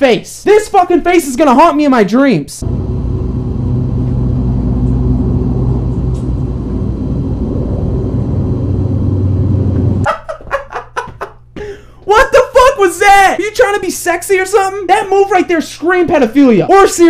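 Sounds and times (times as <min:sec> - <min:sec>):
loud low rumble with hum: 0:02.6 - 0:10.1.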